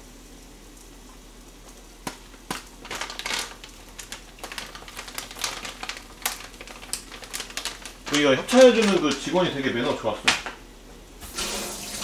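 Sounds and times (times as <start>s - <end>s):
rustling: 1.7s - 9.3s.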